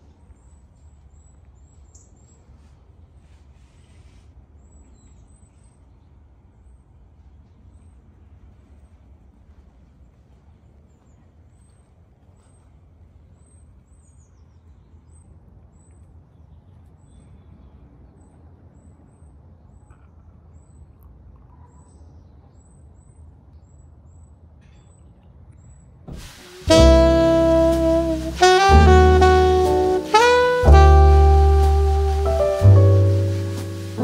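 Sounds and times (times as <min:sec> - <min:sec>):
jazz music with saxophone: 0:26.1 - 0:34.0.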